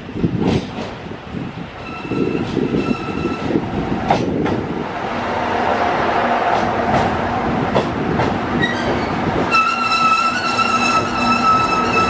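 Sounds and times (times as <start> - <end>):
train engine and wheels rumbling: 0.0 - 12.0
rail joint clicks: 0.3 - 1.1, 1.8 - 4.8, 6.4 - 12.0.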